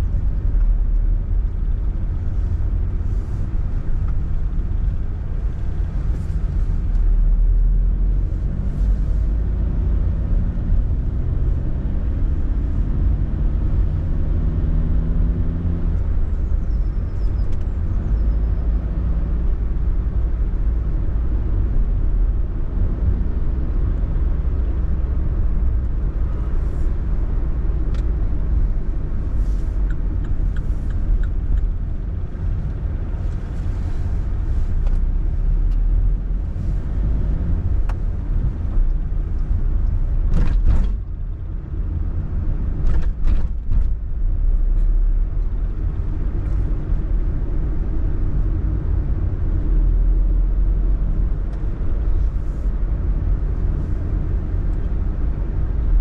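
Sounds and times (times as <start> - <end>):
car engine rumbling: 0.0 - 56.0
car engine accelerating: 5.7 - 20.4.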